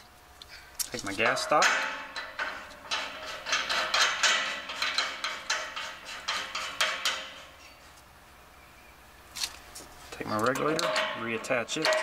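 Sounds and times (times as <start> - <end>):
metal valve clicking and scraping: 0.8 - 7.8, 10.2 - 12.0.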